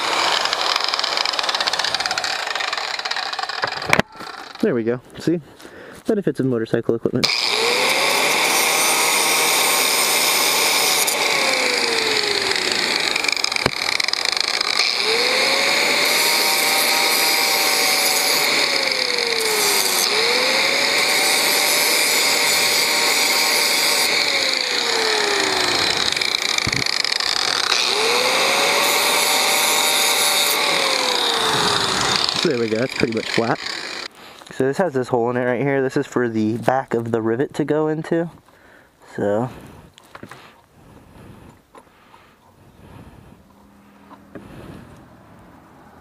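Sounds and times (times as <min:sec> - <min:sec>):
angle grinder grinding metal: 0:00.0 - 0:04.9, 0:07.2 - 0:34.6.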